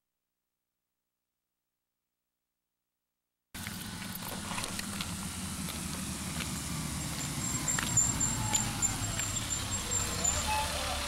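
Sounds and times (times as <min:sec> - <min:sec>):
bus engine rumble: 0:03.6 - 0:11.0
high thin brake squeal: 0:07.0 - 0:11.0.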